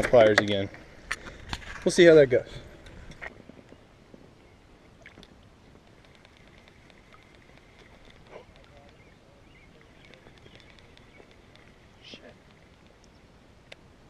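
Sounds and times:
light chirping and ticking: 5.0s - 13.9s.

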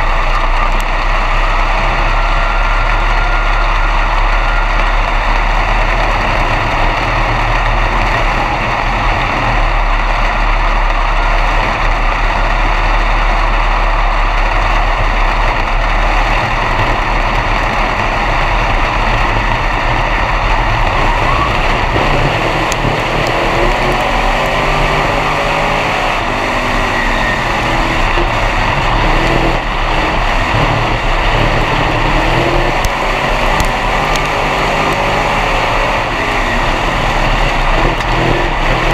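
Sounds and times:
race car engine running: 0.0s - 38.9s.

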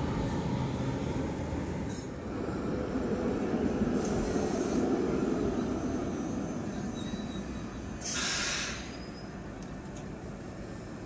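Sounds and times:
tram rumbling on rails: 0.0s - 11.0s
short hiss: 8.0s - 8.9s.

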